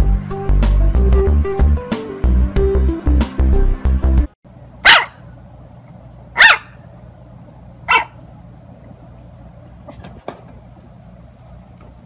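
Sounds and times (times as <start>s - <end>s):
puppy barking: 4.8s - 5.3s, 6.4s - 6.8s, 7.9s - 8.2s.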